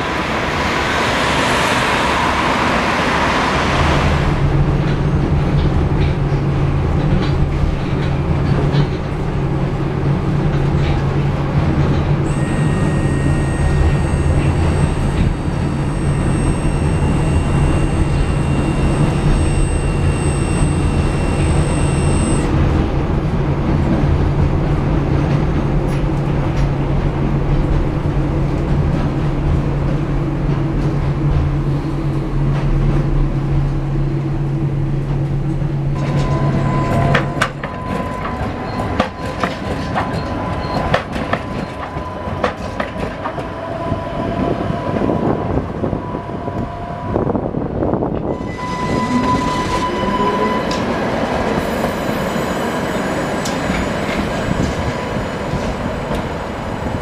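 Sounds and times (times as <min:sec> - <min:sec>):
tram motors and wheels rumbling: 0:00.0 - 0:57.0
tram wheels clicking and squealing: 0:00.5 - 0:23.1, 0:34.7 - 0:57.0
thin high whine: 0:12.2 - 0:22.5.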